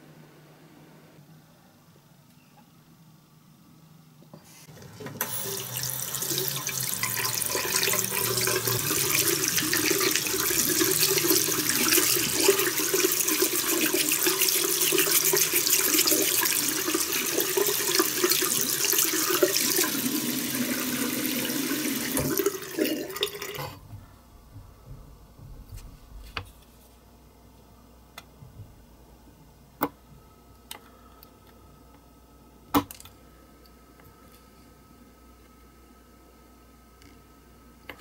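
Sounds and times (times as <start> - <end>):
water running into a sink: 4.7 - 23.8.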